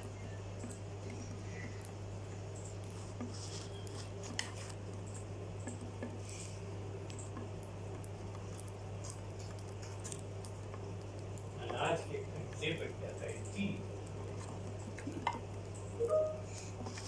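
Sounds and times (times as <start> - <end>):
steady low hum: 0.0 - 17.0
beaks tapping wood and plastic: 7.0 - 15.9.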